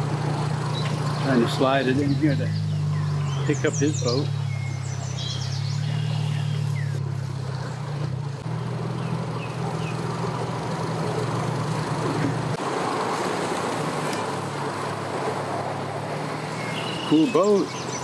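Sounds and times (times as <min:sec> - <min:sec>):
engine idling: 0:00.0 - 0:12.8
vehicles rushing past: 0:00.0 - 0:18.0.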